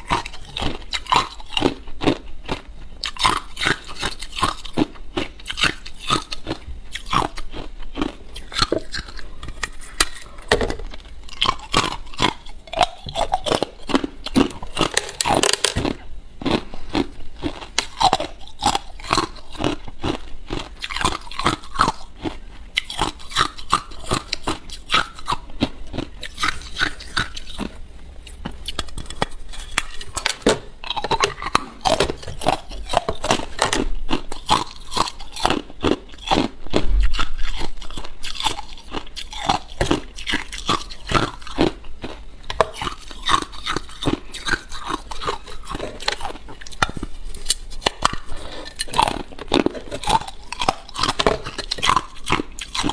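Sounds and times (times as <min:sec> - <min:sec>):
ice being chewed: 0:00.0 - 0:52.9.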